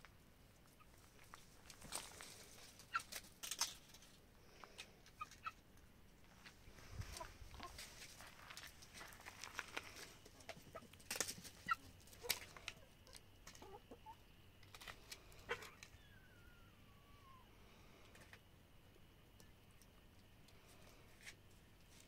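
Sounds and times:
hens clucking softly: 4.5 - 5.7, 6.7 - 8.2, 9.7 - 18.5.

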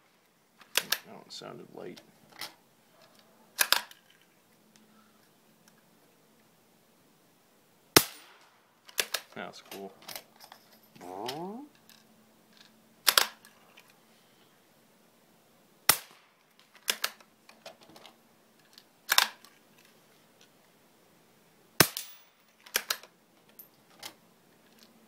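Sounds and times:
rifle shots: 8.0 - 8.4.

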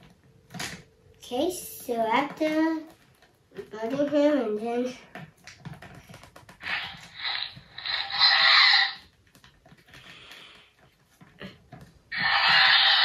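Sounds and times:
child making hissing roar noises: 12.2 - 13.0.

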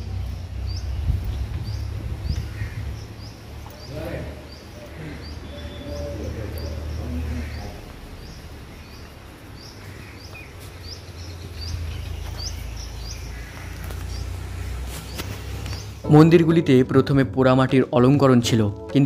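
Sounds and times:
steady low rumble: 0.0 - 3.7
small bird chirping: 0.0 - 16.1.

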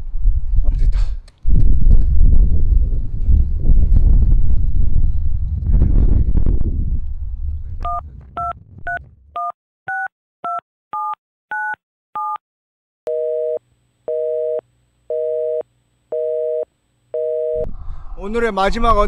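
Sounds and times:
wind and road noise: 0.0 - 9.3
touch-tone beeps: 7.9 - 12.4
phone busy signal: 13.1 - 17.7.

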